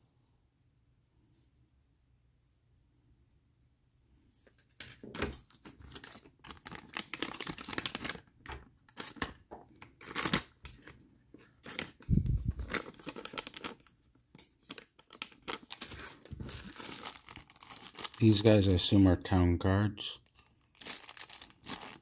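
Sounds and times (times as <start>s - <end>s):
plastic bag crinkling: 4.8s - 18.9s, 20.2s - 22.0s.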